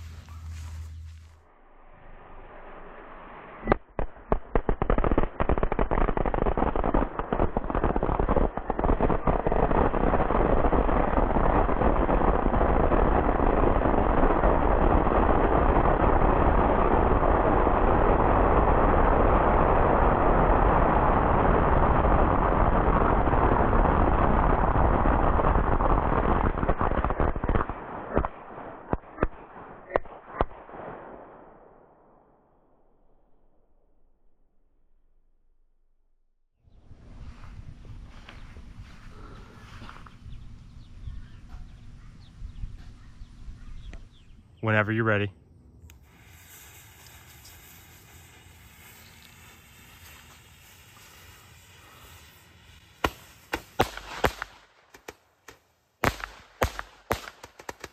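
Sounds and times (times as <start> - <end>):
firecrackers banging: 2.6 - 31.2, 46.0 - 57.9.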